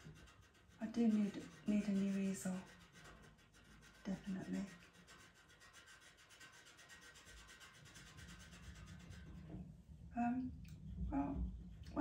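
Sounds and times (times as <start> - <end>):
pencil scratching on paper: 0.0 - 9.5.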